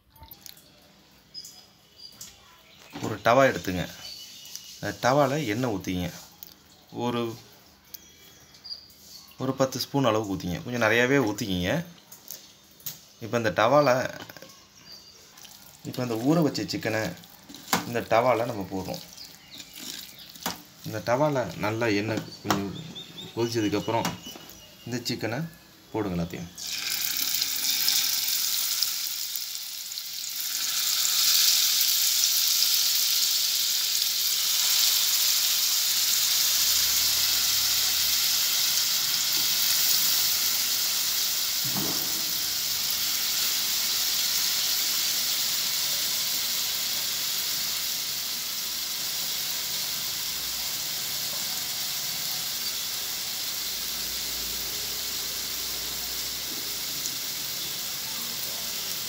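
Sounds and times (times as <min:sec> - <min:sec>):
chicken sizzling in hot oil: 0:14.8 - 0:22.1, 0:26.5 - 0:59.0.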